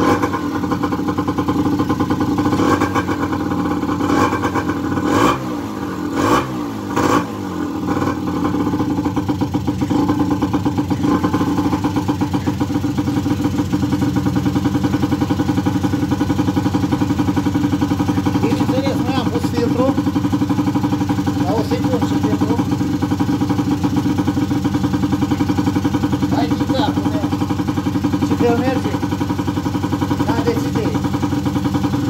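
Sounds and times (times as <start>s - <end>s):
two-stroke engine revving and idling: 0.0s - 32.0s.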